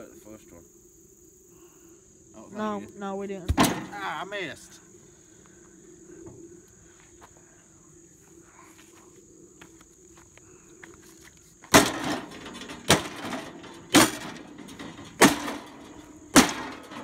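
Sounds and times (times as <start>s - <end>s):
sledgehammer banging on sheet metal: 11.7s - 17.0s.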